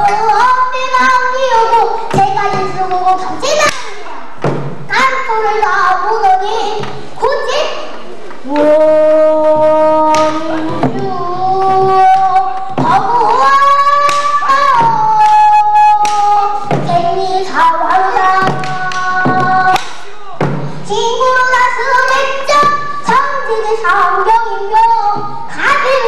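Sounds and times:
drum strokes: 4.3s - 5.0s, 10.0s - 21.0s
girl singing held notes: 8.4s - 20.0s.

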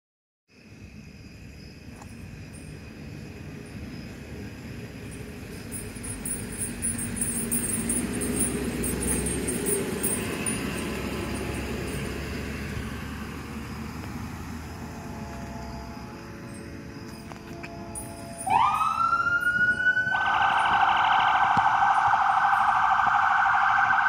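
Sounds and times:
emergency vehicle driving past: 6.1s - 24.0s.

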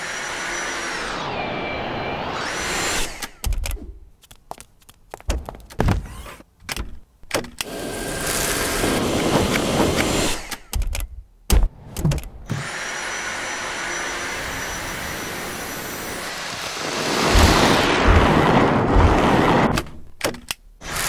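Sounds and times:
vacuum motor whining: 0.0s - 3.5s, 12.5s - 19.9s.

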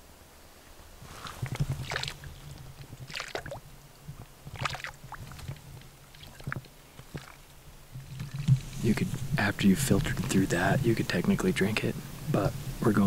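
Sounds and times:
water squirting into plastic bottle: 1.2s - 3.6s, 4.5s - 5.6s.

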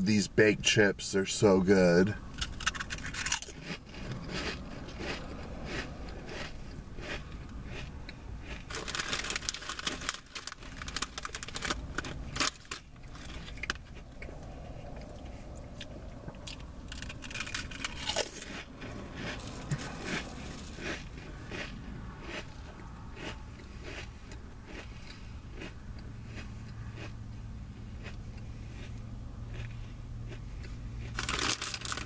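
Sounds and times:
crunching potato chips: 2.3s - 14.1s, 16.4s - 27.1s, 29.5s - 29.7s, 31.0s - 32.0s.

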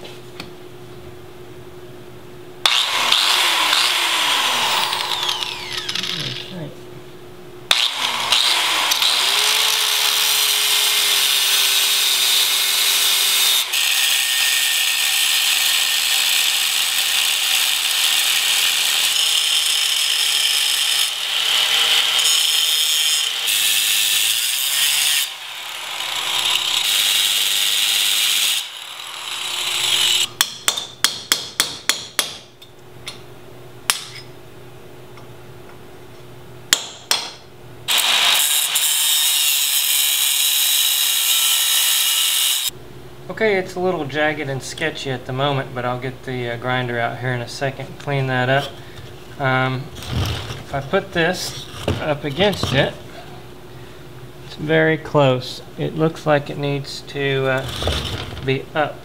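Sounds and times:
angle grinder cutting steel: 2.6s - 6.5s, 7.7s - 30.3s, 37.9s - 42.7s
hammer knocking metal: 30.4s - 32.5s.

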